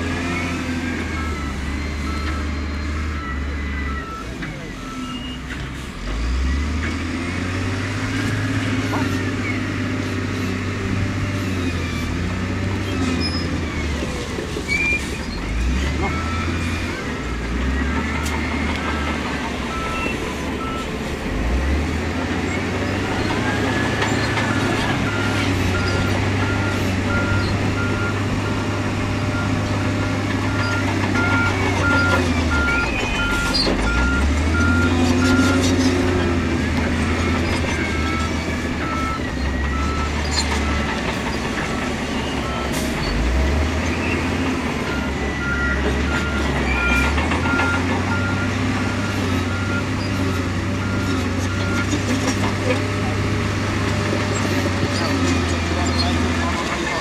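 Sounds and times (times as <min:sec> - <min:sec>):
heavy diesel engines under load: 0:00.0 - 0:57.0
reversing alarm beeping: 0:00.2 - 0:06.9, 0:15.0 - 0:44.2, 0:44.8 - 0:52.1.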